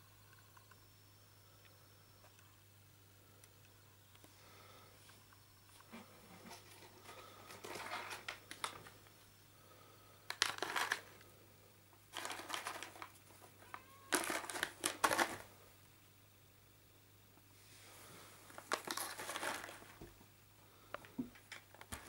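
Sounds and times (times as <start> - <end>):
faint steady hum: 0.0 - 22.0
plastic crinkling and rustling: 5.9 - 9.0, 10.3 - 11.2, 12.1 - 15.5, 18.4 - 20.2, 21.1 - 22.0.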